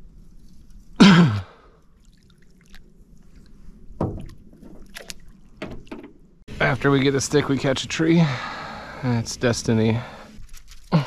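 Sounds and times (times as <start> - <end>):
man sighing: 1.0 - 1.6
faint knocks and clicks: 4.0 - 6.2.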